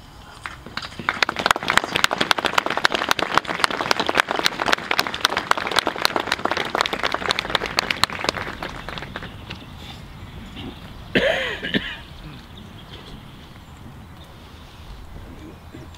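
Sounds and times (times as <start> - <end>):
crowd applauding: 0.4 - 9.7.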